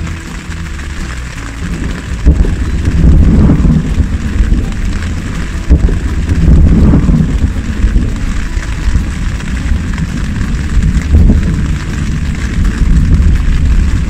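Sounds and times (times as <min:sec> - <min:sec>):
steady rain hiss: 0:00.0 - 0:14.0
loud low thunder rumble: 0:01.7 - 0:14.0.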